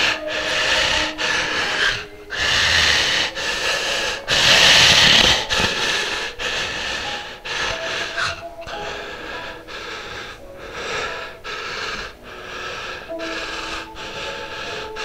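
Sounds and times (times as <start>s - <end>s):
man breathing heavily: 0.0s - 15.0s.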